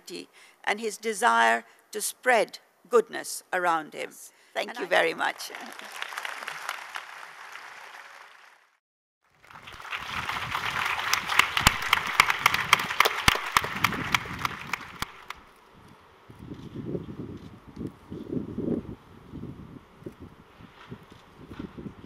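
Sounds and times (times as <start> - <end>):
audience applauding: 5.4 - 8.8, 9.4 - 15.4.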